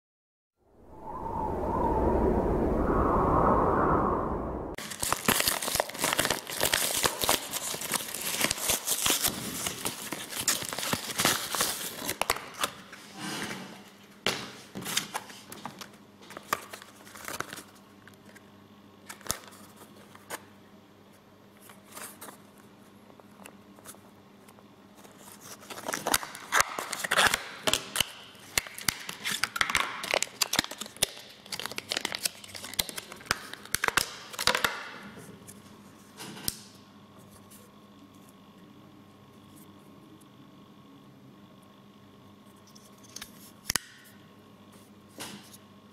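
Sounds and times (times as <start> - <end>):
envelope tearing and crackling: 4.8 - 12.4
paper and plastic rustling: 4.8 - 12.8.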